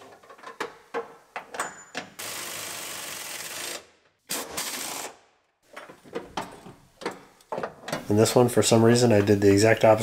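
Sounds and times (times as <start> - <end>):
pneumatic impact wrench hammering: 2.2 - 5.2.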